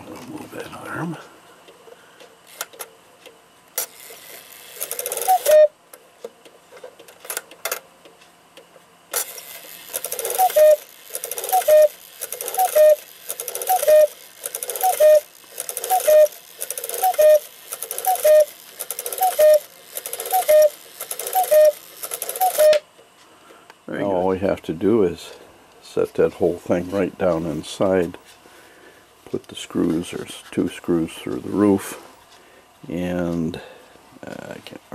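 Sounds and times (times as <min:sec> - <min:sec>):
clock striking mechanism clicks: 0:03.8 - 0:05.7, 0:09.1 - 0:22.8
cuckoo clock calls: 0:03.8 - 0:05.8, 0:09.2 - 0:22.9.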